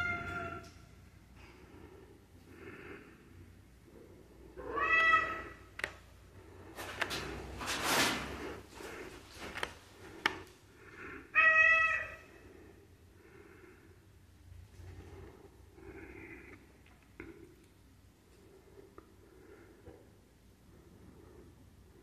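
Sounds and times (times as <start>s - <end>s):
cat meowing: 0.0s - 0.7s, 4.6s - 5.7s, 11.3s - 12.3s.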